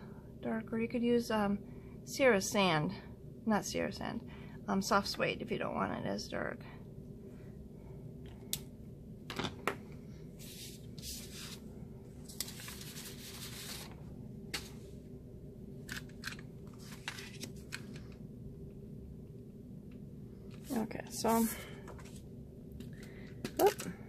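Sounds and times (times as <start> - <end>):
paper sliding and rustling: 10.4 - 11.7, 12.3 - 14.9, 15.9 - 18.0.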